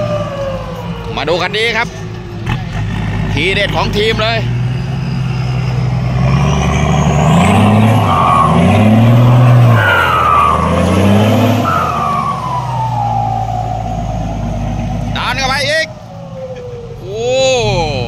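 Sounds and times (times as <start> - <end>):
diesel truck engine revving: 0.0 - 18.0
whistling tone gliding down: 6.4 - 17.6.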